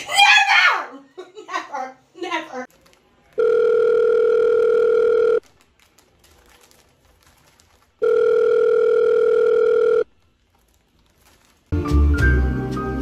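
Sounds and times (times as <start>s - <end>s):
telephone ringback tone: 3.4s - 5.4s, 8.0s - 10.1s.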